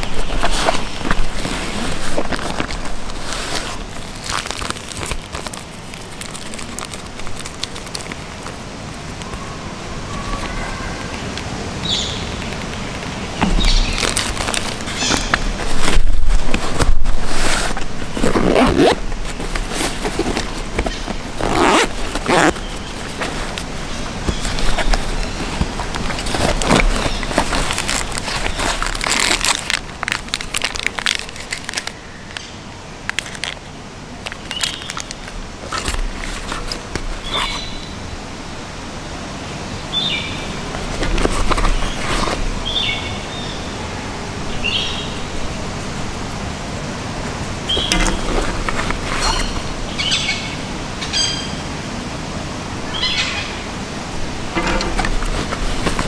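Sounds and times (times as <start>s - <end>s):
foil wrapper crinkling: 0.0s - 10.6s, 13.5s - 32.0s, 33.0s - 37.7s, 47.7s - 49.8s, 54.1s - 56.0s
plastic bag rustling: 0.0s - 10.7s, 12.8s - 32.0s, 33.0s - 37.8s, 40.5s - 42.7s, 47.3s - 50.0s, 53.7s - 56.0s
zippers pulled open: 15.6s - 23.6s, 47.9s - 49.7s.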